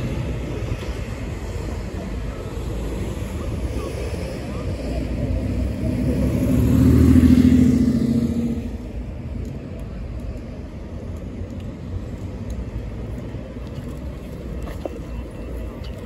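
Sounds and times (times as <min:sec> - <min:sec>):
street background noise: 0:00.0 - 0:16.0
vehicle driving past: 0:05.6 - 0:08.8.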